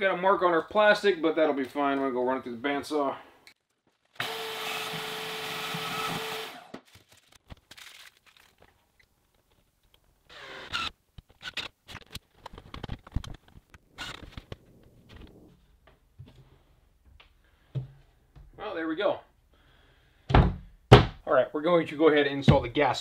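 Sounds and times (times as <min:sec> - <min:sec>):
bandsaw cutting metal: 0:04.2 - 0:06.7
cordless drill whirring: 0:04.2 - 0:06.8, 0:10.3 - 0:10.9.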